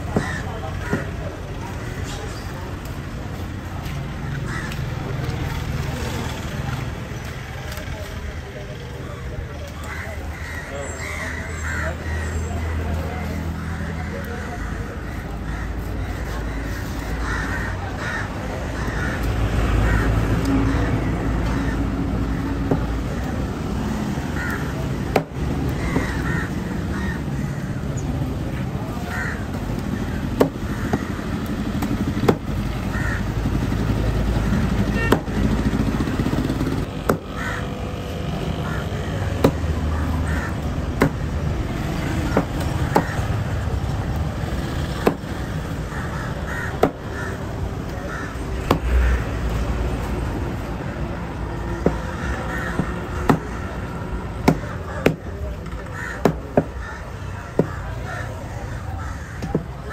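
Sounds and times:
crows cawing: 0.0 - 2.5, 4.2 - 5.2, 9.7 - 23.2, 24.2 - 28.0, 28.8 - 35.4, 36.3 - 41.3, 41.9 - 43.7, 45.0 - 49.6, 51.7 - 59.9
low street rumble: 0.0 - 59.9.

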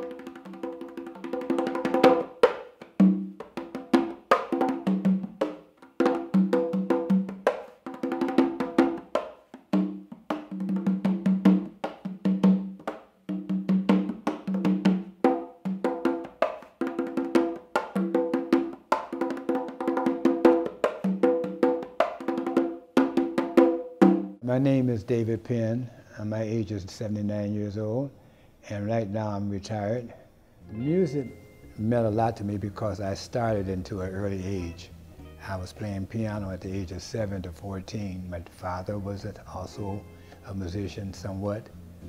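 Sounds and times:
conga drumming: 0.0 - 24.4, 30.7 - 42.0.

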